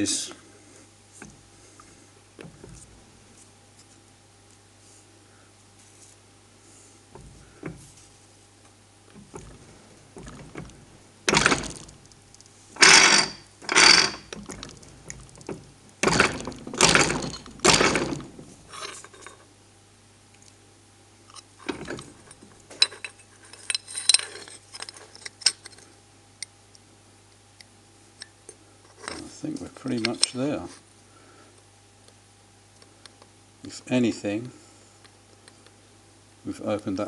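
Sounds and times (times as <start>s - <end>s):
metal clinks: 12.8s - 19.4s.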